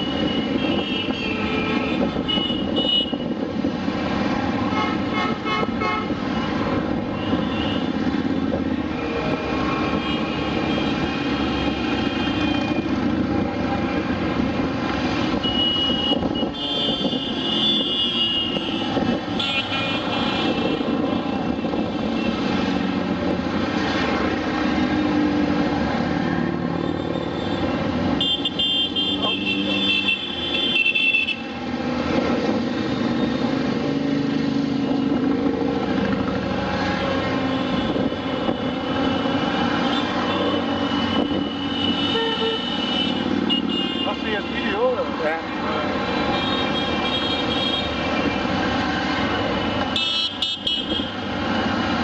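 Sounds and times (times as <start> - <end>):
motorcycle engines passing: 16.2 - 52.0.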